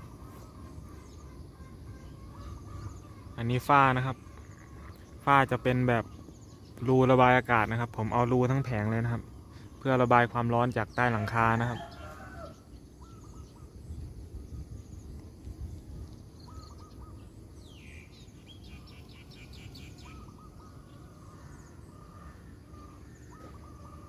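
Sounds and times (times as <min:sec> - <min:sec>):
faint high buzz: 0:00.0 - 0:10.6
birds chirping: 0:00.0 - 0:24.0
low outdoor rumble: 0:00.0 - 0:24.0.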